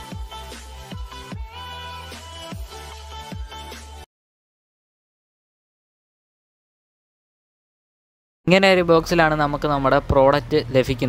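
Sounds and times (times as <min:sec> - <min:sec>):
electronic music: 0:00.0 - 0:04.1.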